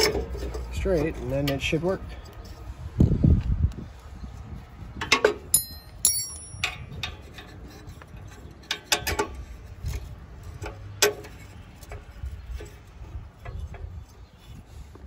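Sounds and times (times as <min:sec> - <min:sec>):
metal tools clinking: 0:05.5 - 0:07.6.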